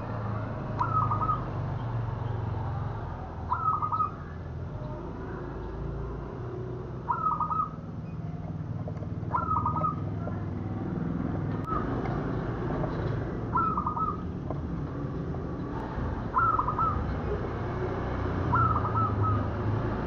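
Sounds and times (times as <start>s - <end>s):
dove cooing: 0.8s - 1.5s, 3.5s - 5.4s, 7.0s - 7.8s, 9.1s - 10.4s, 13.4s - 14.4s, 16.3s - 17.4s, 18.4s - 19.6s.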